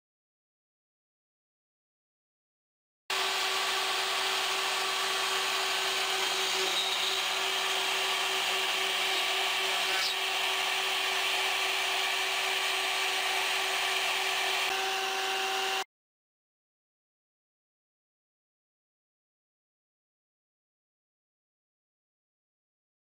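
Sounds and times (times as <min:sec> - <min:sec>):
router spindle cutting wood: 0:03.1 - 0:15.9.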